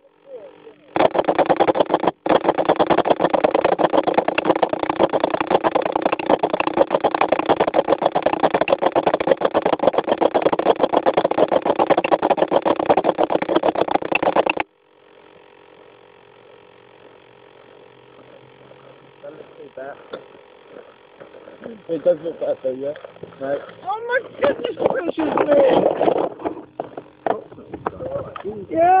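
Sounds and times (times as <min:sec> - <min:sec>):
model plane motor buzzing: 0:00.0 - 0:29.0.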